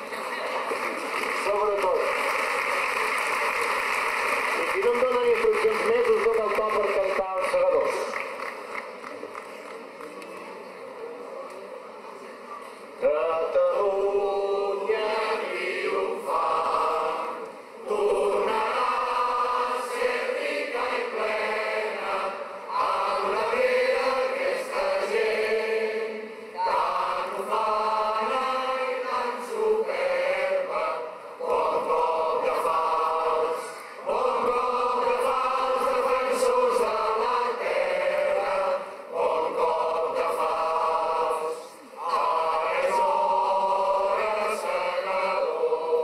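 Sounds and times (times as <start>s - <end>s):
crowd singing in unison: 13.0s - 46.0s.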